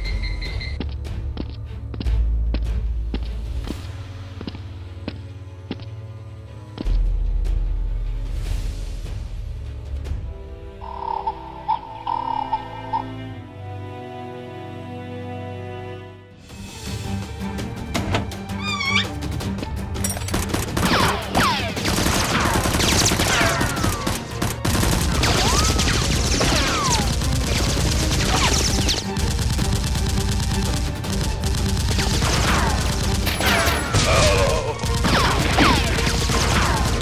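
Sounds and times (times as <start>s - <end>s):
low music bed: 0.1s - 20.3s
automatic gunfire: 20.3s - 33.5s.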